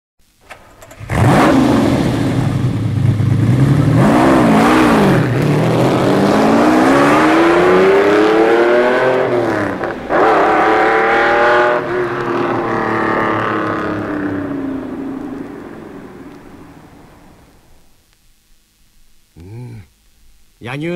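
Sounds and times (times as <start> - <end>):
sports car engine accelerating: 0.9 - 16.7.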